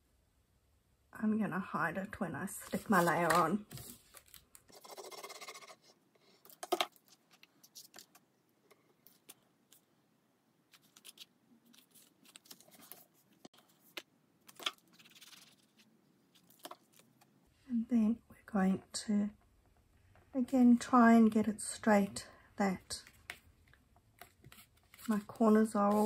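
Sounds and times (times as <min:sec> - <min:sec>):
cardstock scrape: 0:24.5 - 0:26.0.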